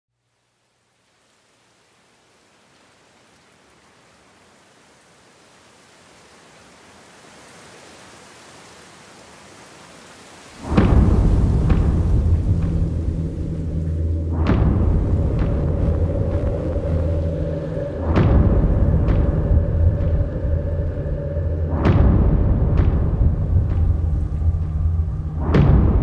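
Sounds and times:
soft rain-like hiss: 0.1s - 26.0s
deep boom: 10.7s - 21.0s, 21.7s - 24.7s, 25.3s - 26.0s
low rumbling drone: 10.7s - 26.0s.

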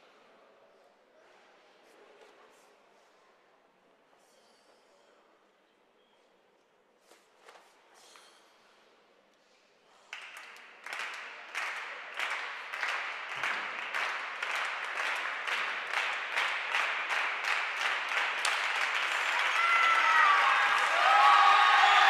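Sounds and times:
audience applause: 10.2s - 22.0s.

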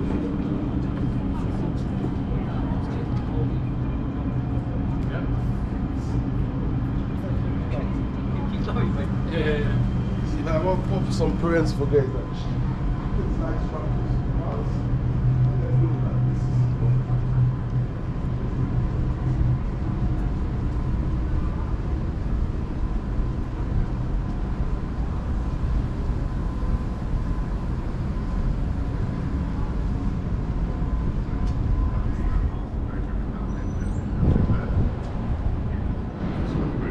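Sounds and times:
low city rumble: 0.0s - 36.9s.

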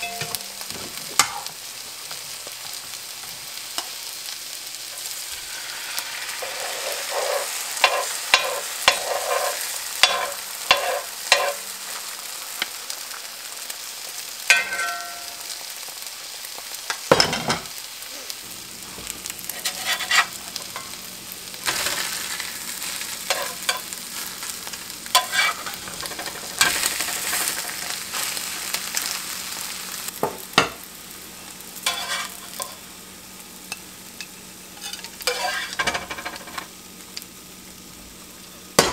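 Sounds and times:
eggs sizzling in hot oil: 0.0s - 38.9s
metal spatula scraping pan: 6.4s - 11.6s, 19.5s - 20.9s, 23.3s - 23.8s, 25.1s - 27.6s, 31.8s - 32.8s, 34.8s - 36.6s.

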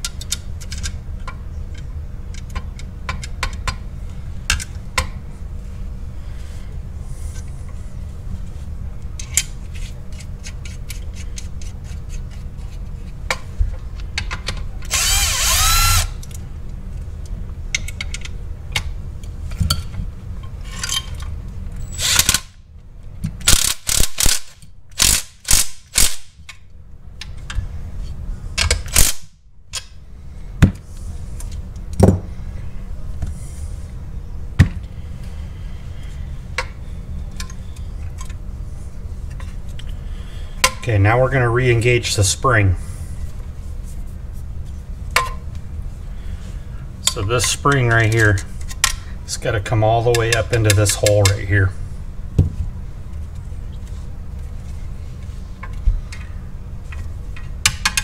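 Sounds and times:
cordless drill driving a bolt: 14.9s - 16.2s.

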